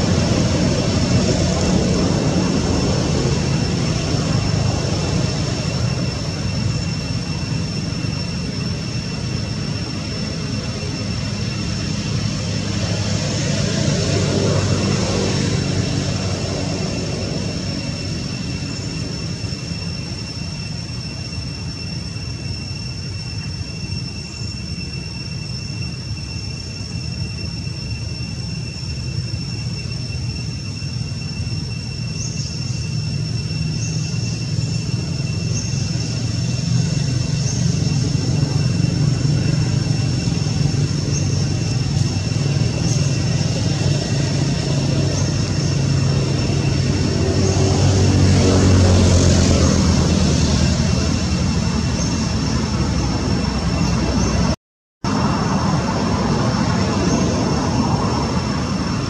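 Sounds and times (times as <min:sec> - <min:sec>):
low engine rumble: 0:00.0 - 0:21.0
high-pitched whine: 0:00.0 - 0:59.0.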